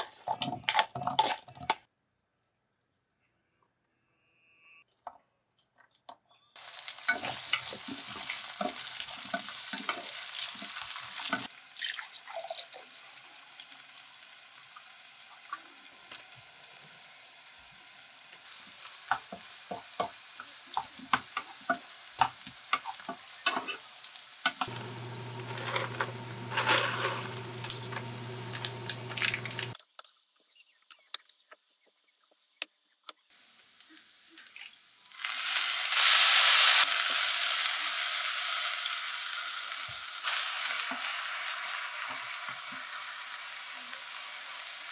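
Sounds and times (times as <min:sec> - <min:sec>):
garlic sizzling in oil: 0:06.6 - 0:29.8, 0:30.4 - 0:44.9
steady low hum: 0:24.7 - 0:29.7.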